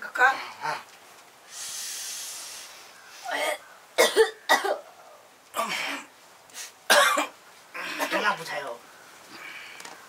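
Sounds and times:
steady hiss: 0.0 - 10.0
person coughing: 3.3 - 4.8, 6.9 - 7.3.

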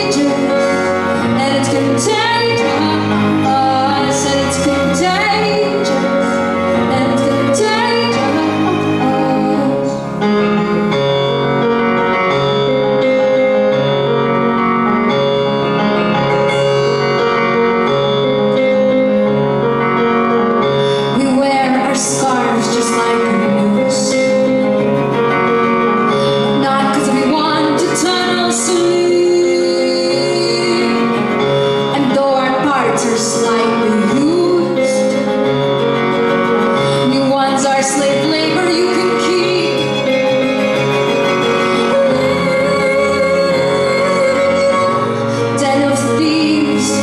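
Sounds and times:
woman singing: 0.0 - 10.5, 20.8 - 24.7, 26.2 - 35.5, 36.8 - 40.8, 41.5 - 47.0
grand piano chords: 0.0 - 47.0.

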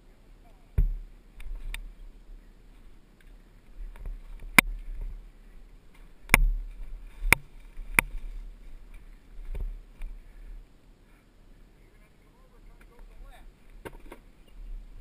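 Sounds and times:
dirt bike knocks and clunks: 0.8 - 1.0.

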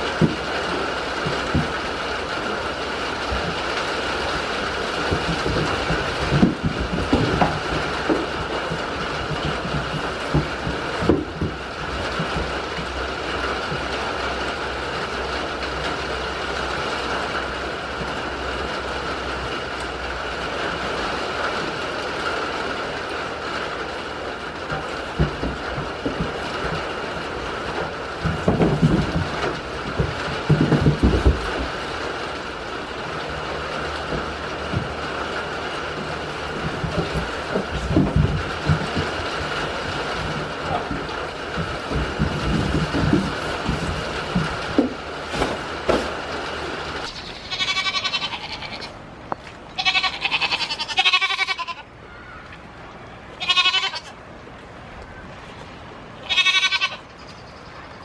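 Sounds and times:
rain on a metal roof: 0.0 - 58.0
low knocks and bumps: 3.2 - 13.0, 24.7 - 32.2, 32.9 - 47.0.

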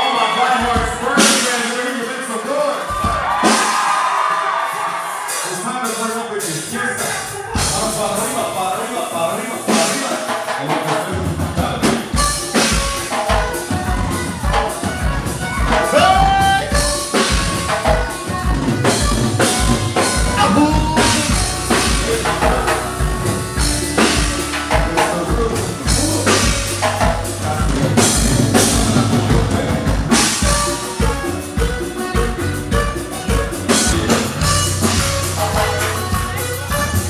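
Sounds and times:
band music: 0.0 - 37.0
drum kit beat: 0.0 - 37.0
person singing: 15.7 - 17.1, 18.8 - 34.8.

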